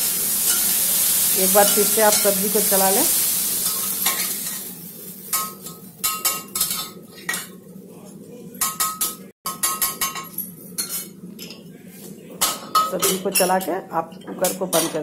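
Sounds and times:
frying sizzle: 0.0s - 11.3s.

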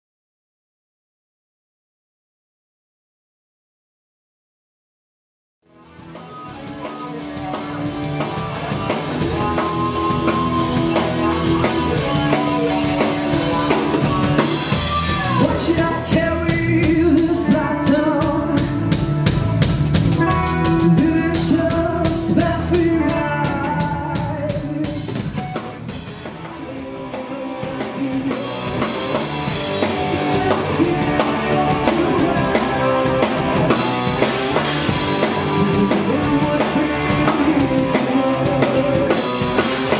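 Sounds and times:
rock band playing: 5.6s - 39.9s
man singing lead vocal: 6.8s - 19.2s, 20.6s - 25.3s, 26.2s - 39.9s.

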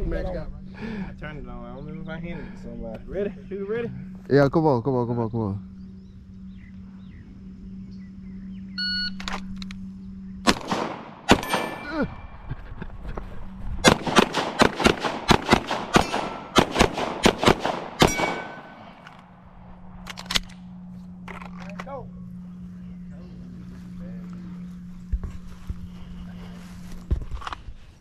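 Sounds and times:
gunshots: 10.4s - 12.0s, 13.8s - 19.0s.

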